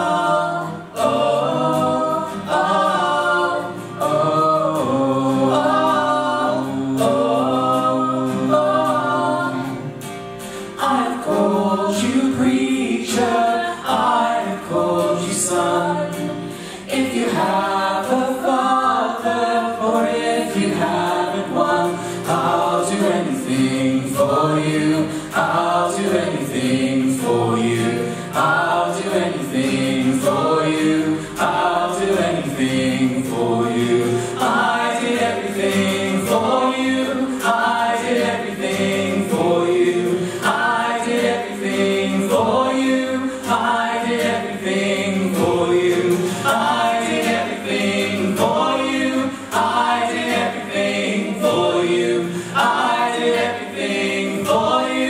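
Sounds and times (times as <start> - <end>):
acoustic guitar strumming: 0.0 - 55.0
voices singing in harmony: 0.0 - 55.0.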